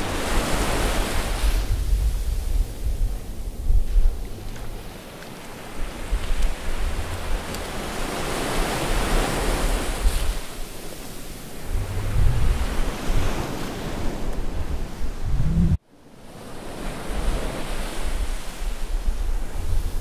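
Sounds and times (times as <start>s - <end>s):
wind rumbling on microphone: 0.0s - 15.8s, 16.8s - 20.0s
ocean surf washing in: 0.0s - 20.0s.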